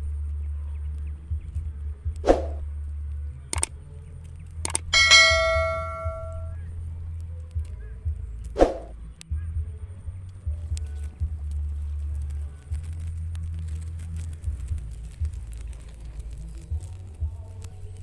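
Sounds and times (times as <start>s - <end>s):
short clicks: 3.5s - 3.7s, 4.7s - 4.9s
brief hits: 4.7s - 6.6s
bell ding: 4.9s - 6.6s.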